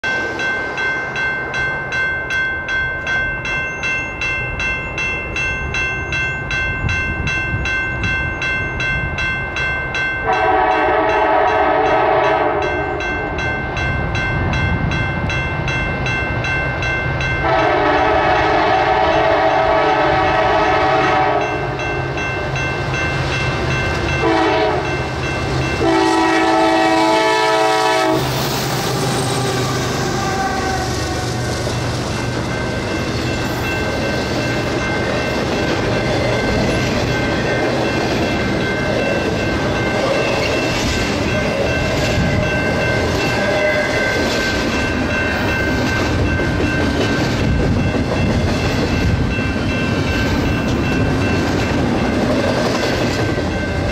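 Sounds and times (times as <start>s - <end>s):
rapid bell ringing: 0.0s - 11.2s, 11.8s - 17.5s, 21.4s - 25.9s, 32.1s - 53.9s
locomotive engine and train rumble: 0.0s - 53.9s
locomotive horn blasts: 10.2s - 12.9s, 17.4s - 21.6s, 24.2s - 25.0s, 25.8s - 28.3s.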